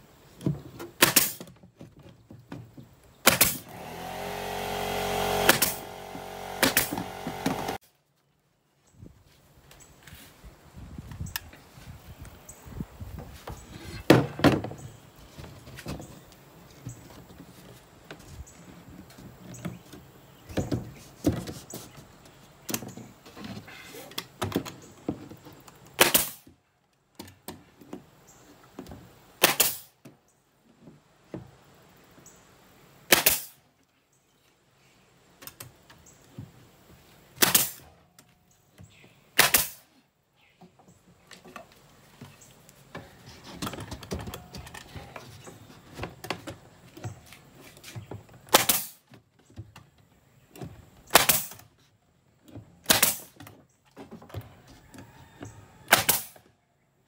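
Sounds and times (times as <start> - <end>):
nail gun firing into plywood: 1.0 - 1.5, 3.2 - 7.8, 26.0 - 26.5, 29.4 - 29.9, 33.1 - 33.6, 37.4 - 37.9, 39.4 - 39.9, 48.5 - 49.1, 51.1 - 51.7, 52.8 - 53.4, 55.9 - 56.5.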